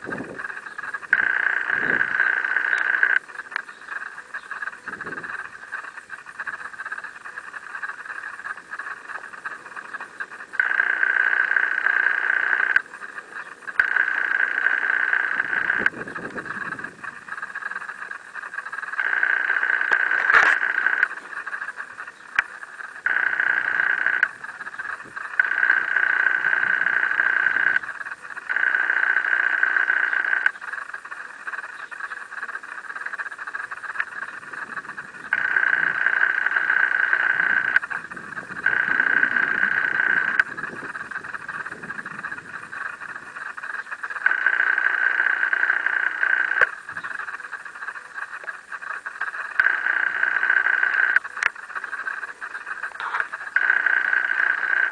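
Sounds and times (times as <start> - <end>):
frogs trilling: 0.0 - 54.9
sharp click: 18.9 - 21.2.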